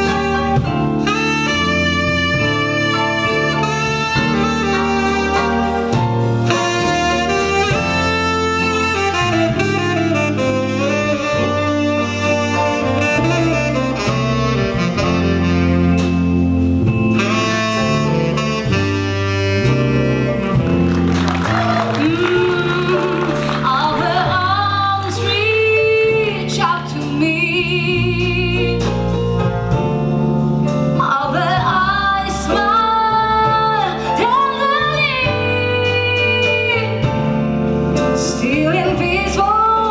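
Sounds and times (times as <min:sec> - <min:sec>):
jazz big band playing: 0:00.0 - 0:39.9
tenor saxophone solo: 0:00.0 - 0:39.9
woman singing ballad: 0:21.8 - 0:29.1, 0:31.0 - 0:37.2, 0:38.2 - 0:39.9.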